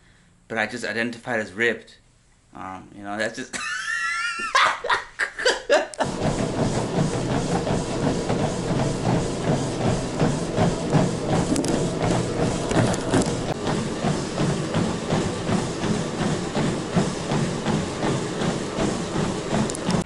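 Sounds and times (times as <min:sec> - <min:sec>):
treadmill whir: 0:03.6 - 0:20.0
footfalls thudding on treadmill belt: 0:06.0 - 0:20.0.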